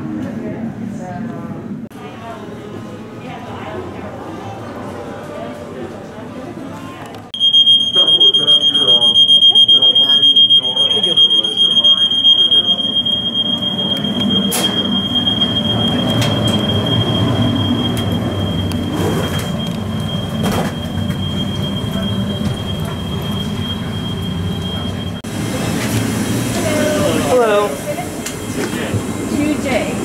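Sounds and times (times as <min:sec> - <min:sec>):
alarm steady high tone: 0:07.4 - 0:25.3.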